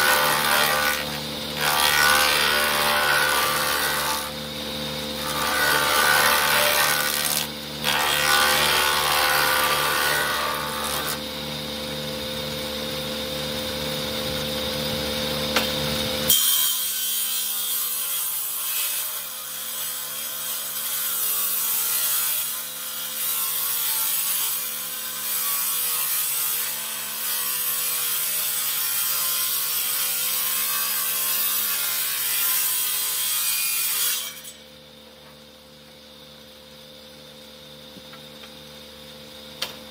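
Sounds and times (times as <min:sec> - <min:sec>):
motor hum: 0:00.0 - 0:16.3
woodworking machine cutting wood: 0:00.0 - 0:34.6.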